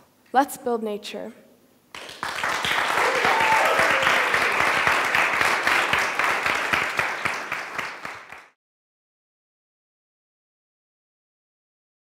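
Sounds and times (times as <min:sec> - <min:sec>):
audience applauding: 0:01.9 - 0:08.6.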